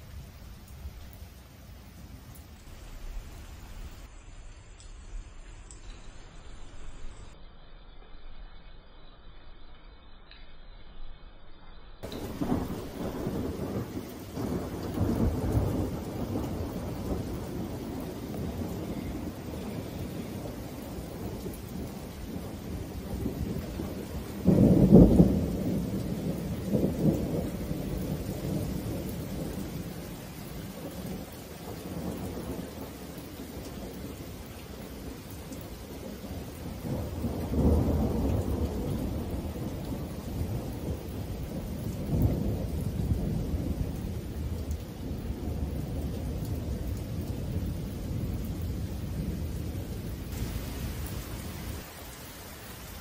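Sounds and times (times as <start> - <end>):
steady rain: 0.0 - 53.0
thunder clap and rolls: 12.0 - 34.3, 35.1 - 53.0.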